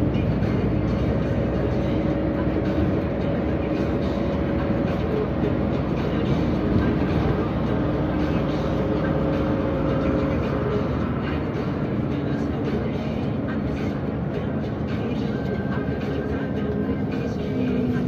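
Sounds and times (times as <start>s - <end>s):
bus diesel engine droning: 0.0s - 18.0s
road and body noise: 0.0s - 18.0s.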